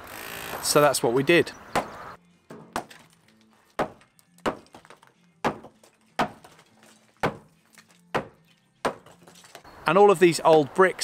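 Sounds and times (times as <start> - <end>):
hammer blows smashing brick wall: 2.5 - 9.3.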